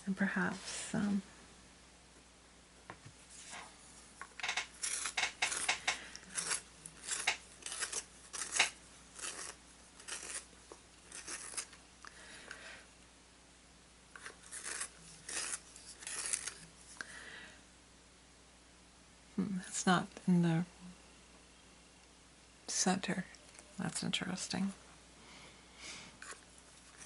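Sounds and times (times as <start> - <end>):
pencil sharpener rasping scrapes: 4.8 - 10.5, 11.1 - 11.8, 14.2 - 16.6.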